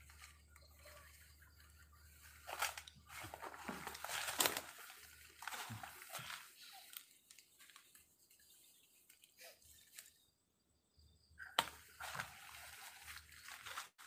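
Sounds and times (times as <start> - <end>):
dry leaves crunching and rustling: 0.0 - 8.1, 11.6 - 14.0.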